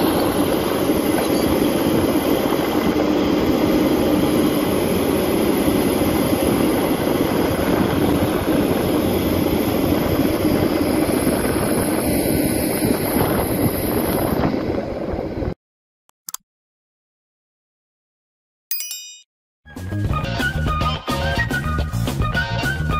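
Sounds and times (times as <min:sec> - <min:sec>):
excavator diesel engine running: 0:00.0 - 0:15.4
short clicks: 0:16.1 - 0:16.4.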